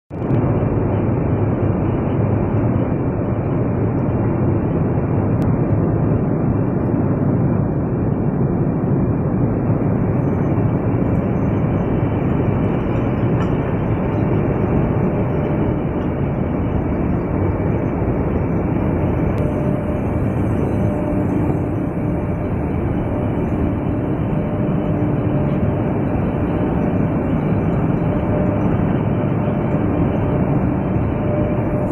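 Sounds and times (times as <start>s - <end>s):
belt conveyor rumbling: 11.2s - 31.9s.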